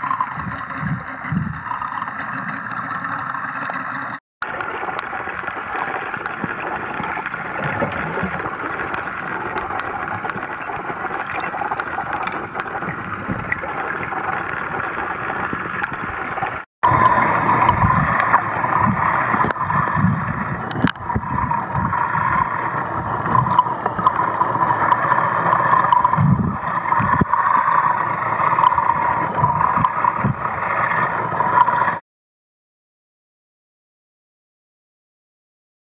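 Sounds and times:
low sloshing thumps: 0.0s - 4.2s, 16.8s - 30.8s
underwater gurgling and sloshing: 0.0s - 32.0s.

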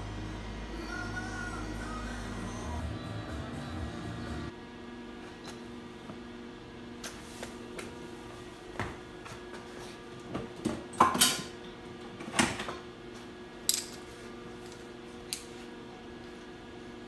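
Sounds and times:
low hum: 0.0s - 4.6s.

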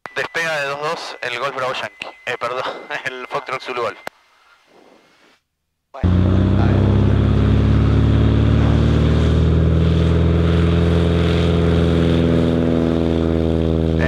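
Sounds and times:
propeller plane engine drone: 6.0s - 14.0s.

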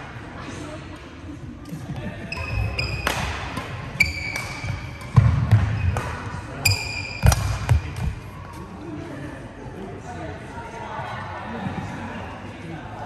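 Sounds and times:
shoes squeaking on floor: 2.3s - 3.2s, 4.0s - 5.1s, 6.6s - 7.8s
racket hitting shuttlecock: 2.8s - 8.2s.

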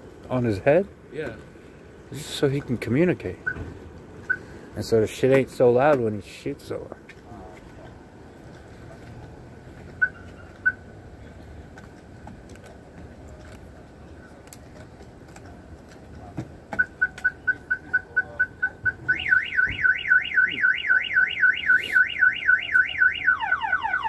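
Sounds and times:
electronic alarm beeping and warbling: 16.8s - 24.0s.

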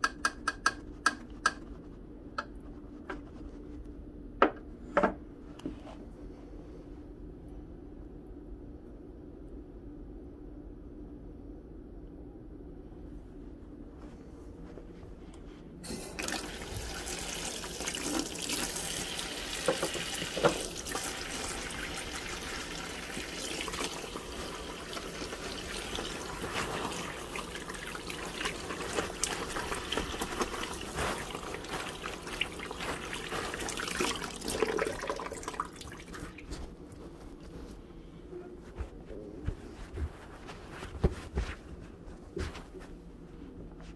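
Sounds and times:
faucet running: 15.9s - 36.3s
hands rinsing under water: 15.9s - 36.6s.

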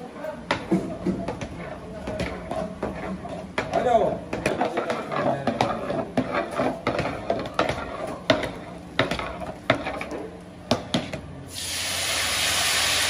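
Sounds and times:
metal ladle scraping a cooking pot: 1.2s - 10.3s.

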